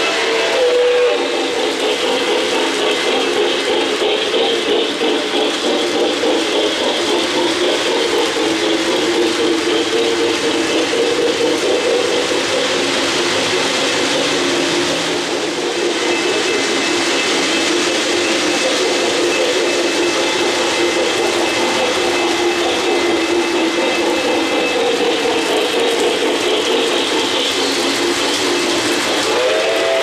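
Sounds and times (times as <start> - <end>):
multi-tone train whistle: 0.0 - 3.3, 28.9 - 30.0
model train motors and wheels rumbling: 0.0 - 30.0.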